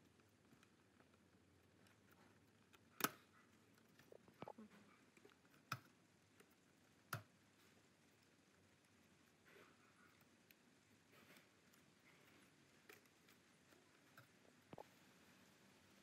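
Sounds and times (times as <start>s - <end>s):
soft ticks: 0.0s - 14.9s.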